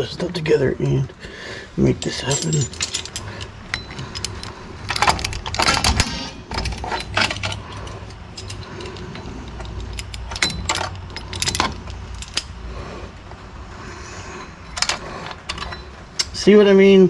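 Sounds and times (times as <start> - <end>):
steady low hum: 0.0 - 17.0
metal brake parts clinking: 1.8 - 12.7, 14.3 - 16.7.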